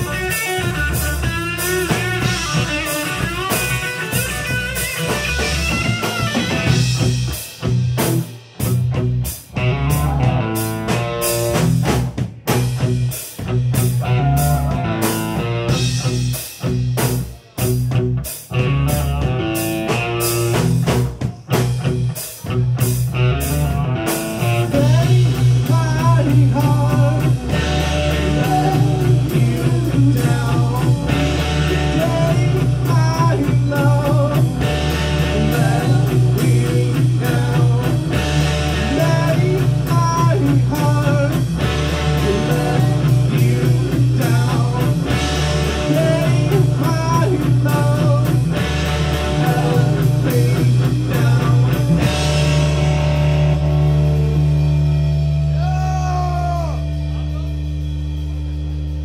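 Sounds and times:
metal band playing: 0.0 - 59.0
person singing: 14.0 - 15.2, 24.4 - 52.2, 55.5 - 57.7.

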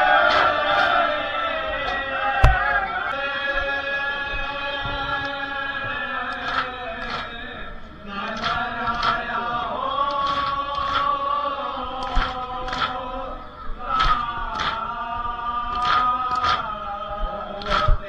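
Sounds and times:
men chanting in long notes: 0.0 - 18.0
hand-on-chest slaps: 0.3 - 1.0, 1.9 - 2.8, 6.3 - 7.4, 8.3 - 9.3, 11.9 - 13.1, 13.9 - 14.9, 15.7 - 16.8, 17.6 - 18.0.

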